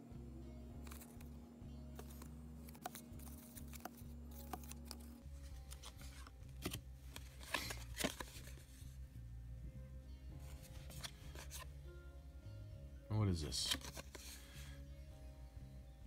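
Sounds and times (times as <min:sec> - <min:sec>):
quiet background music: 0:00.0 - 0:16.0
cards rustling and clicking: 0:00.8 - 0:08.9, 0:10.4 - 0:11.7, 0:13.5 - 0:14.7.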